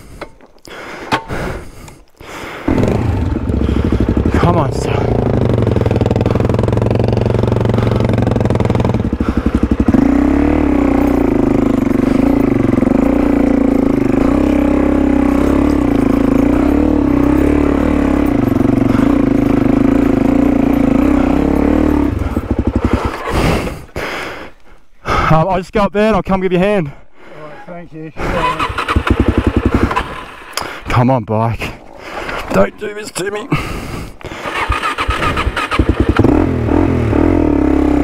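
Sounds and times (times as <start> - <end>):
motorcycle engine revving: 2.6 - 23.9, 28.3 - 30.6, 33.6 - 38.0.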